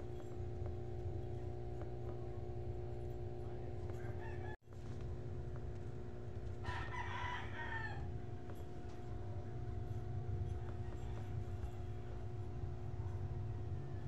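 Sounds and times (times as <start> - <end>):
steady low hum: 0.0 - 14.0
rooster crowing: 3.9 - 4.6, 6.6 - 8.6, 13.4 - 14.0.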